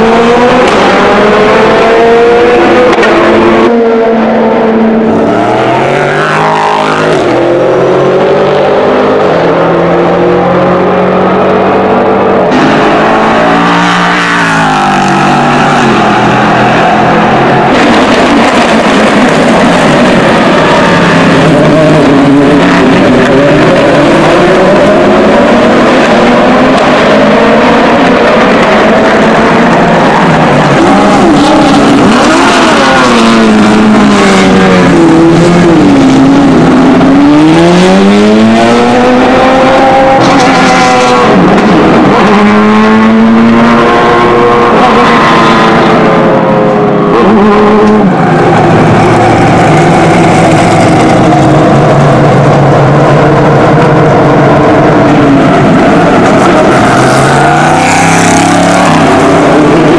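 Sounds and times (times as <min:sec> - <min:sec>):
race car engines at high revs: 0:00.0 - 0:59.9.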